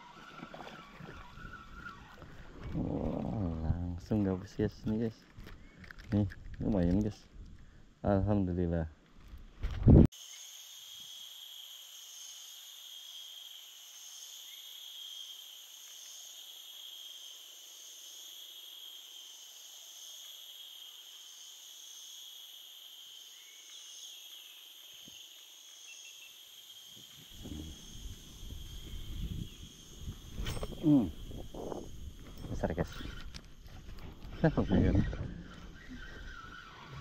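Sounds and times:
insects droning: 0.0 - 37.0
rustle of movement: 27.3 - 37.0.

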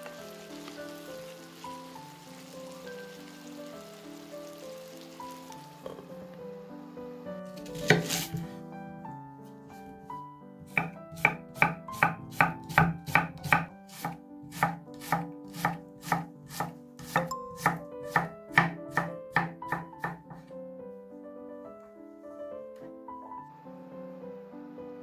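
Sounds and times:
soft piano background music: 0.0 - 25.0
knife chopping onion on wooden board: 7.7 - 8.4, 10.6 - 20.4.

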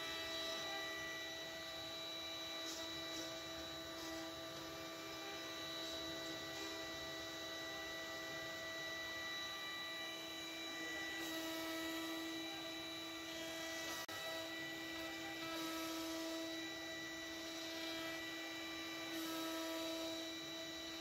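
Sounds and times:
hiss of router cutting wood: 0.0 - 21.0
wood router spindles whining: 0.0 - 21.0.

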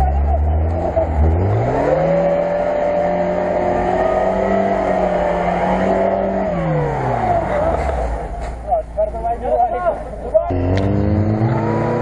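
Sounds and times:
car engine revving hard: 0.0 - 8.0, 10.5 - 12.0.

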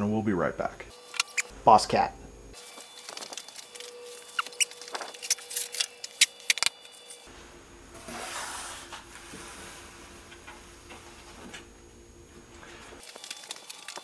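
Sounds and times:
sharp clicks and squeaks: 1.1 - 1.5, 3.0 - 6.9
sheet scraping on machine bed: 8.0 - 10.7.

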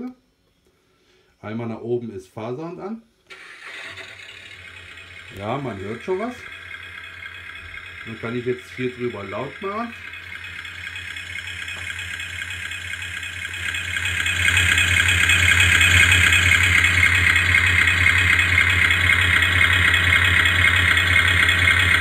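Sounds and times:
boat engine sound through speaker: 5.2 - 12.4.

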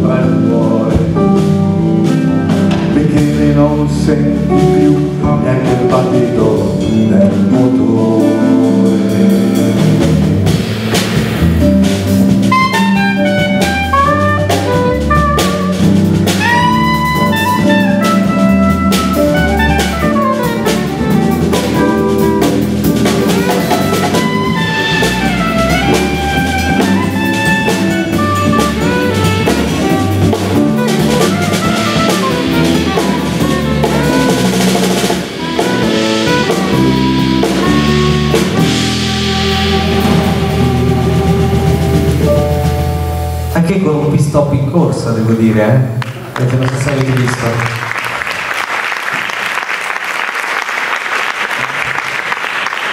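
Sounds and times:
drum kit: 0.0 - 47.6
bass: 0.0 - 48.7
soprano saxophone melody: 12.5 - 43.4.

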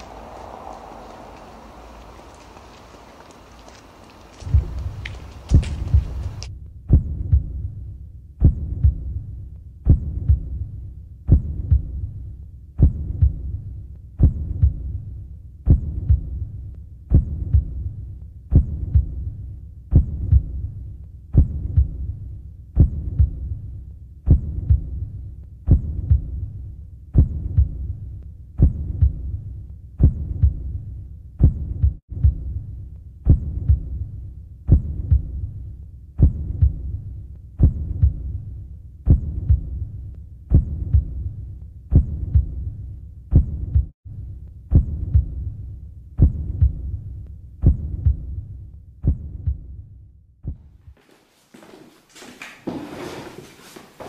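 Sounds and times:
low hum: 0.0 - 7.7
heartbeat thumps: 3.6 - 44.0, 44.7 - 51.0.

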